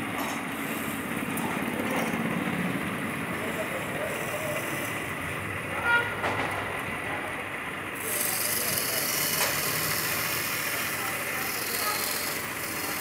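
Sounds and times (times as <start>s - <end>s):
wood lathe running: 0.0s - 5.7s, 6.8s - 13.0s
chisel cutting hiss: 3.4s - 5.1s, 8.0s - 13.0s.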